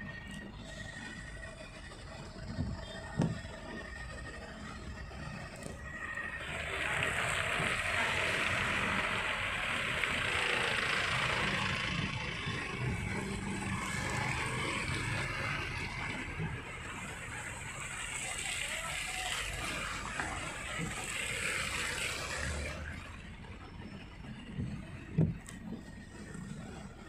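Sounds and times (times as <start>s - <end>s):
low engine rumble: 0.0s - 27.0s
tyres hissing through water: 5.6s - 23.0s.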